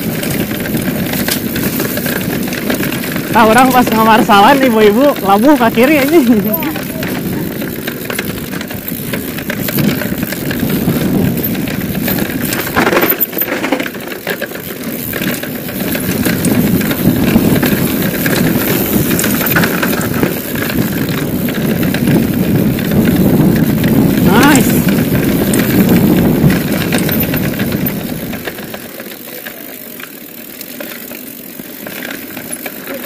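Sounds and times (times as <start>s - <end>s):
bike rattling over bumps: 0.0s - 33.0s
bike tyre noise on dirt: 0.0s - 33.0s
wind on microphone: 6.1s - 13.0s, 15.9s - 28.5s.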